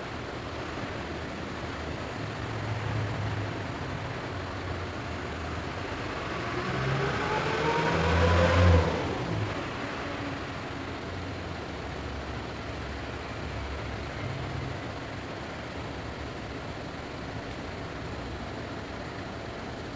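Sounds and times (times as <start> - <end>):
road vehicle passing by: 2.3 - 11.4.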